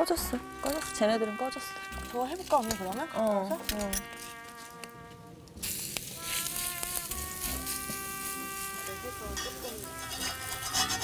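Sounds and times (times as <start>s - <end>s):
batter sizzling in hot oil: 5.6s - 11.0s.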